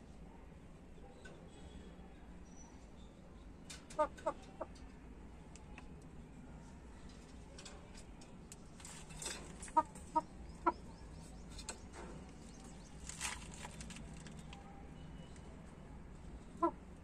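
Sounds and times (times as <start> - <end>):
chickens clucking softly: 3.7 - 5.1, 9.0 - 13.0.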